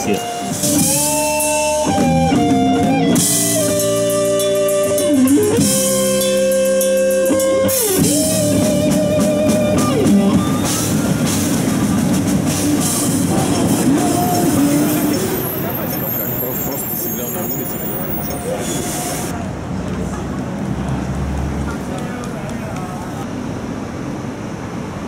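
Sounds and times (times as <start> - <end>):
electric guitars: 0.0 - 15.5
bass guitar: 0.0 - 16.0
drum kit with cymbals: 0.0 - 19.4.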